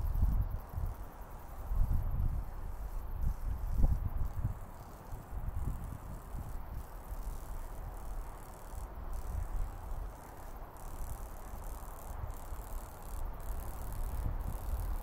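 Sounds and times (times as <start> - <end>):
wind buffeting microphone: 0.0 - 8.1
steady rustling hiss: 0.0 - 15.0.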